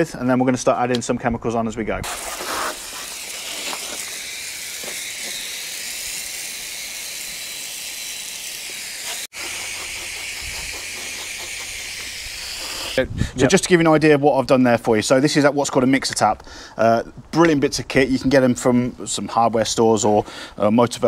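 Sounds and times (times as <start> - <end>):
spray splashing on bodywork: 2.0 - 13.0
water spraying from garden hose: 2.0 - 13.0.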